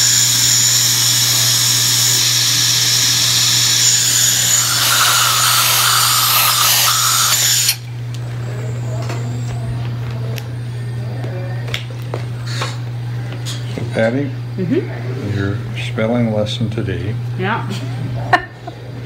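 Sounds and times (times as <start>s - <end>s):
dental drill whining: 0.0s - 7.9s.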